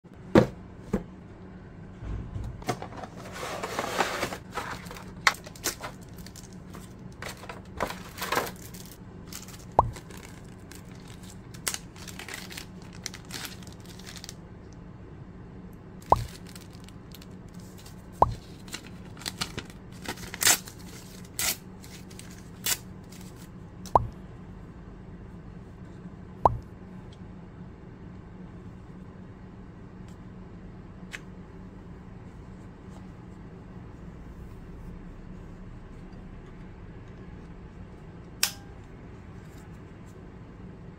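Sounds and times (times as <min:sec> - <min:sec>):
steady low hum: 0:00.0 - 0:40.9
plastic bag crinkling: 0:04.4 - 0:14.4, 0:16.0 - 0:23.4
paper tearing: 0:18.6 - 0:23.4.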